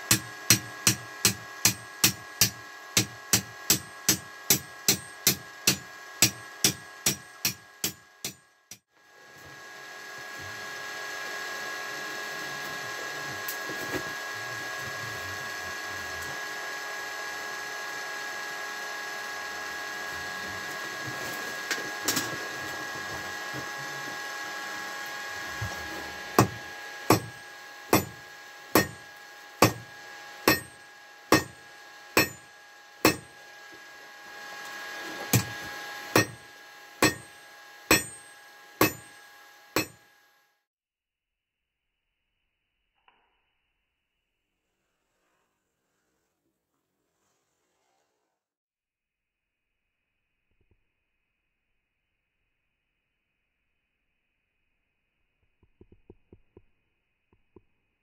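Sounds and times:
hammer striking iron on anvil: 0:00.0 - 0:08.8, 0:26.4 - 0:31.6, 0:32.2 - 0:33.4, 0:35.3 - 0:39.2, 0:39.8 - 0:40.1
air blower whirring hum: 0:00.0 - 0:40.4.

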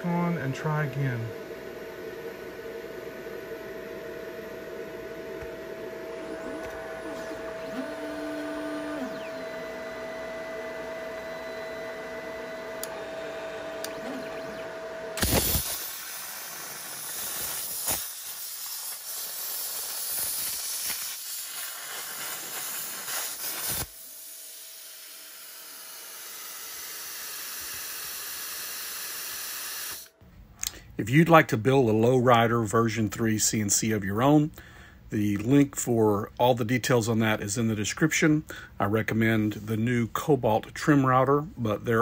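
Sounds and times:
motor whine: 0:00.0 - 0:30.2
machine hum: 0:00.0 - 0:32.3
soft air hiss: 0:15.2 - 0:25.8
plasma cutter arc hissing: 0:15.2 - 0:30.1.

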